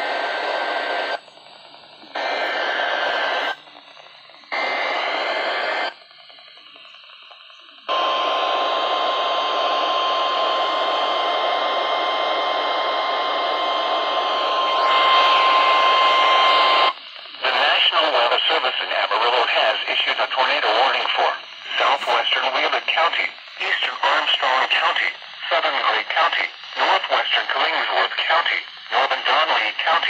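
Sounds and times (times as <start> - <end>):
steady warning alarm tone: 0.0 - 29.8
radio static hiss: 0.0 - 30.0
digital alert buzzing bursts: 14.4 - 17.0.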